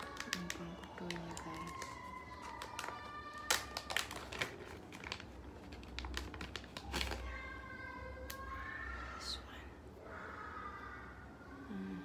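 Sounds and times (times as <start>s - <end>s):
packaging crinkling: 0.0s - 7.4s.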